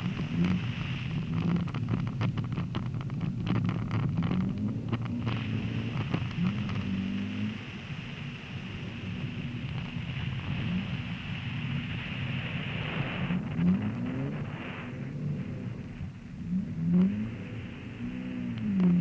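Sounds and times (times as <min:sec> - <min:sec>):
car engine revving: 0:00.0 - 0:19.0
tyres hissing on icy snow: 0:05.3 - 0:15.9.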